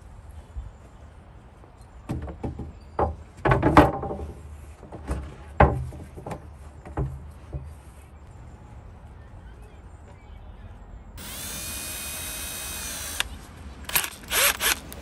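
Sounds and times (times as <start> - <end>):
wooden knocks and thuds: 2.1 - 7.7.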